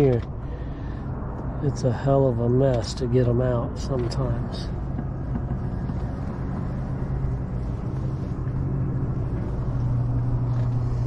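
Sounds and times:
low mechanical hum: 0.0 - 11.0
low rumble: 3.8 - 11.0.

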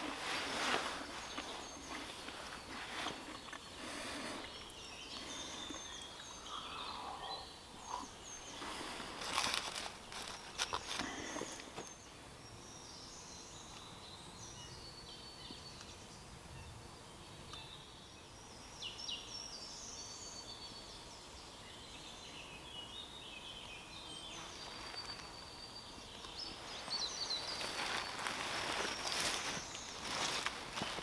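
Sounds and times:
dry leaves rustling underfoot: 0.0 - 5.9, 8.5 - 11.9, 24.4 - 25.5, 26.5 - 31.0
small birds singing: 0.0 - 31.0.

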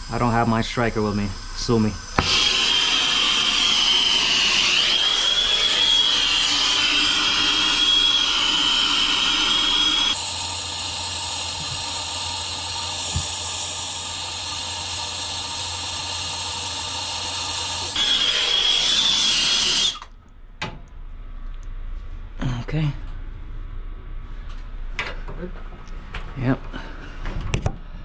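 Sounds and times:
hiss with high steady tone: 0.0 - 18.0
brazing torch hissing: 0.0 - 20.1.

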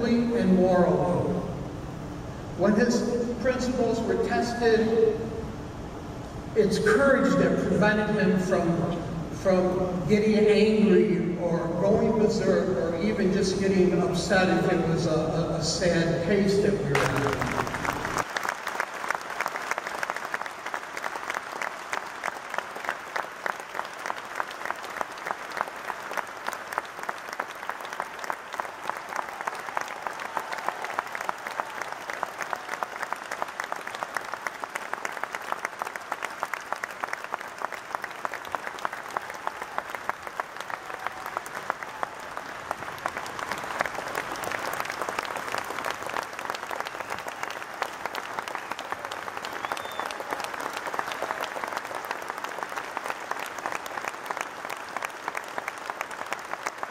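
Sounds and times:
large crowd applauding: 16.9 - 56.9.

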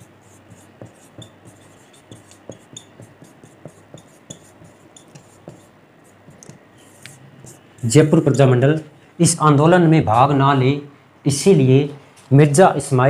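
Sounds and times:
marker squeaking on whiteboard: 0.0 - 8.4.

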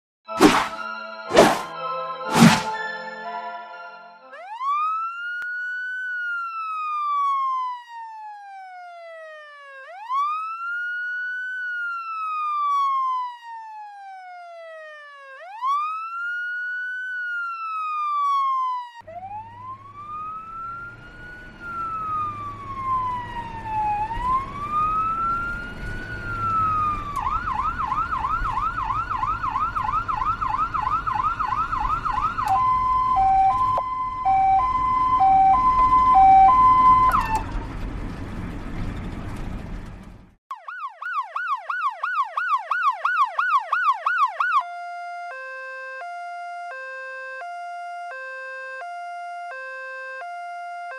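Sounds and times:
two-tone hi-lo siren: 0.3 - 37.6, 40.5 - 50.9
wailing siren: 0.3 - 37.7, 40.5 - 50.9
fast yelp siren: 4.2 - 37.6, 40.5 - 50.9
traffic noise: 19.0 - 40.4.

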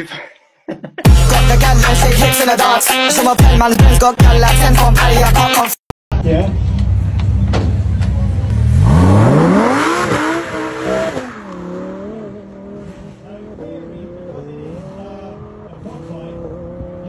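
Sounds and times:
car engine revving with wheelspin: 7.2 - 17.0.

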